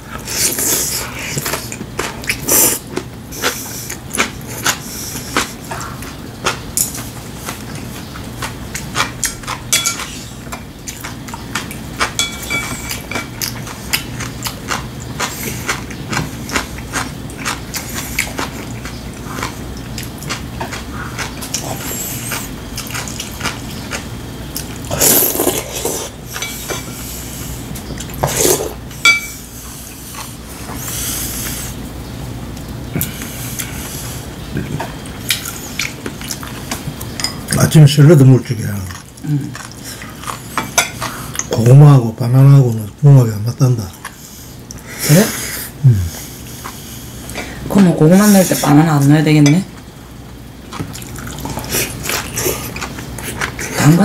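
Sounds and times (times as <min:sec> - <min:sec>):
chewing: 0:00.1 - 0:31.8, 0:32.5 - 0:37.6, 0:38.7 - 0:41.7, 0:46.1 - 0:47.6, 0:50.6 - 0:54.0.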